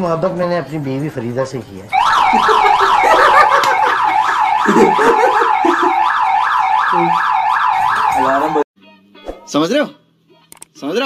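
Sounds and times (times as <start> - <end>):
electronic alarm sweeping up and down: 1.9 - 8.6.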